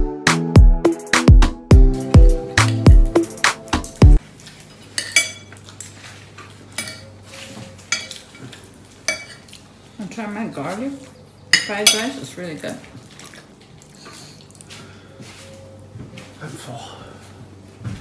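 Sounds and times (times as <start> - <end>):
background music with a beat: 0.0 - 4.2
cutlery scraping a plate: 5.0 - 9.6.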